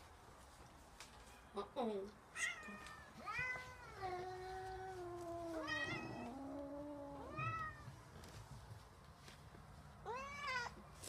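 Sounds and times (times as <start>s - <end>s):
cat meowing: 2.4s - 7.9s, 10.0s - 10.8s.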